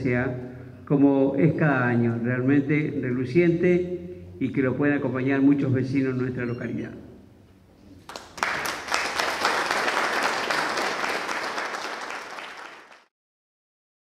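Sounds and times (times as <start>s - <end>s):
audience applauding: 8.0s - 13.1s.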